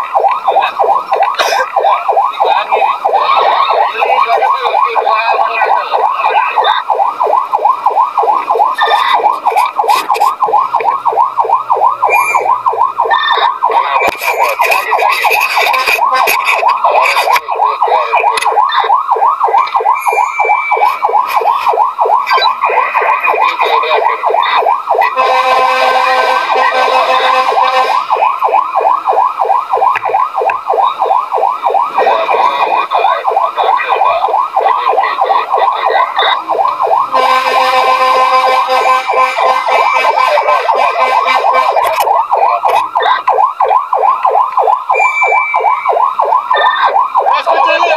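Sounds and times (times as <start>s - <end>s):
fire engine siren yelping: 0.0s - 47.9s
horn blast: 25.1s - 28.0s, 37.1s - 41.8s.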